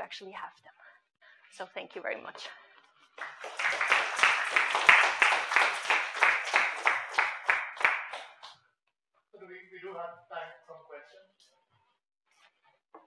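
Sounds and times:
audience applauding: 3.2 - 8.6.

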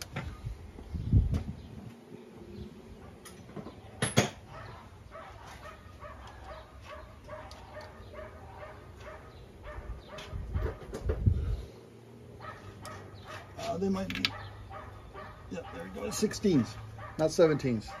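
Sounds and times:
dog barking: 4.5 - 10.9, 12.4 - 13.7, 14.3 - 18.0.

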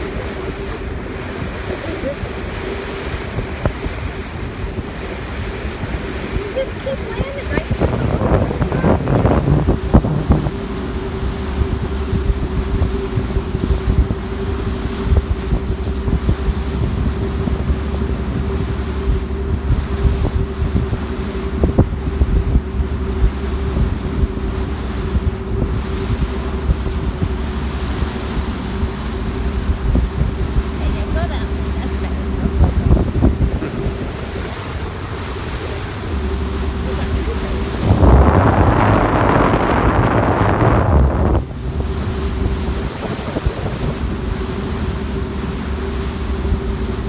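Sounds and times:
wind buffeting microphone: 0.0 - 47.0
ferry engines droning: 30.7 - 42.9.

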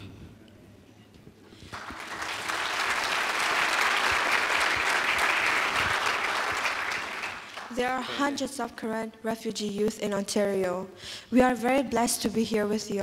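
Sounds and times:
audience applauding: 1.7 - 7.9.

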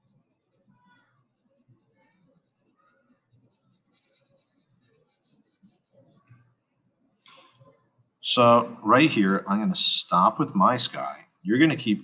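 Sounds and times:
marker scratching on paper: 0.0 - 6.5, 10.2 - 12.0.

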